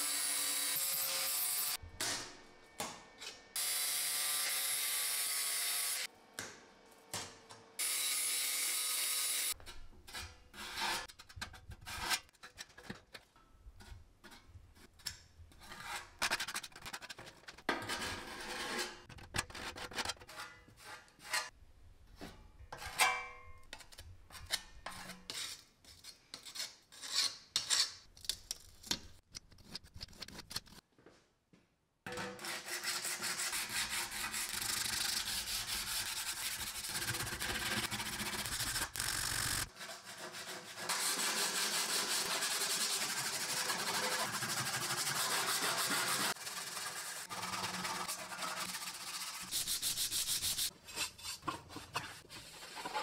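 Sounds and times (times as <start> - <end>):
sandpaper rasping on filler: 32.4 - 53.0.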